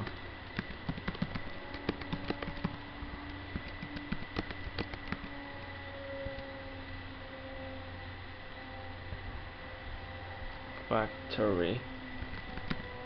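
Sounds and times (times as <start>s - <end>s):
typing on computer keyboard: 0.0s - 2.8s, 3.5s - 5.4s, 12.2s - 12.9s
steady low hum: 0.0s - 13.0s.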